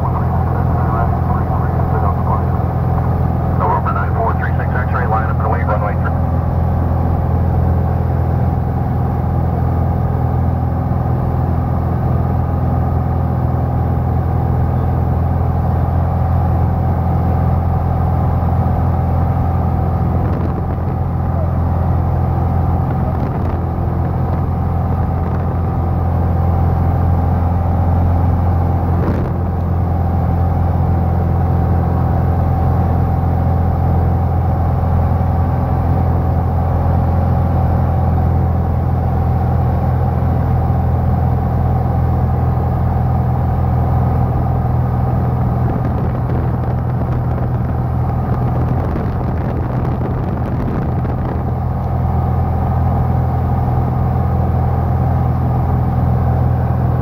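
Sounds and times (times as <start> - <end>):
airplane engine and propeller drone: 0.0 - 57.0
wind noise: 20.1 - 21.1, 22.8 - 25.7, 45.4 - 51.8.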